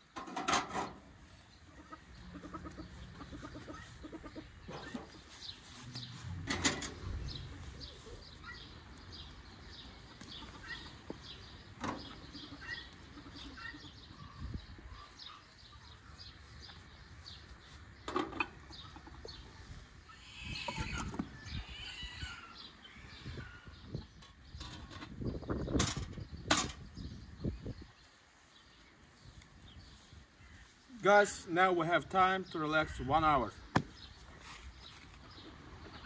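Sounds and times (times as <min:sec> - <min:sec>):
hen clucking: 0:00.9 - 0:09.0, 0:09.9 - 0:11.2, 0:11.8 - 0:15.5, 0:18.1 - 0:24.3, 0:35.2 - 0:36.0
small birds chirping: 0:01.0 - 0:36.0.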